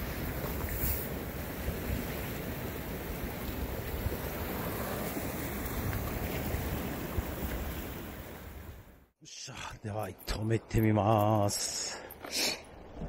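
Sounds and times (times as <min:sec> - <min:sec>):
surf washing against rocks: 0:00.0 - 0:08.7.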